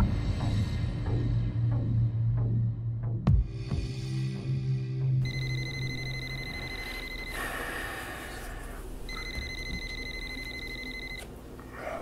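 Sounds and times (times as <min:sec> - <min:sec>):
phone electronic trilling ring: 0:05.2 - 0:07.6, 0:09.1 - 0:11.2.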